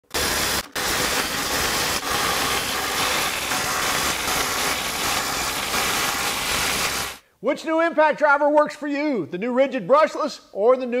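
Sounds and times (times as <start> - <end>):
impact drivers hammering: 0.0 - 7.2.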